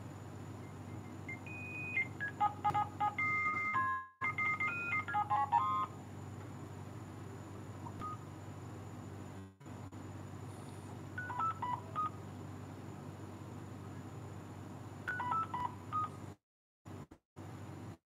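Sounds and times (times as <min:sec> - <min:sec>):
steady low hum: 0:00.0 - 0:03.6, 0:04.2 - 0:18.0
phone keypad beeps: 0:01.3 - 0:05.9, 0:11.2 - 0:12.2, 0:15.1 - 0:16.2.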